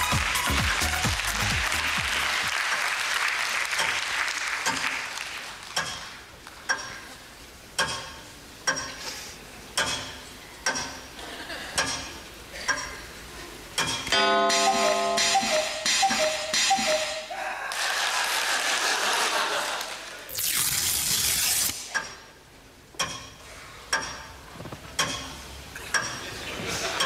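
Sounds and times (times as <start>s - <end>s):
audience applause: 0.0s - 5.8s, 17.7s - 20.3s
clock ticking: 6.6s - 7.1s, 7.7s - 9.0s, 9.8s - 13.0s, 13.7s - 17.3s, 21.9s - 24.4s, 25.0s - 26.3s.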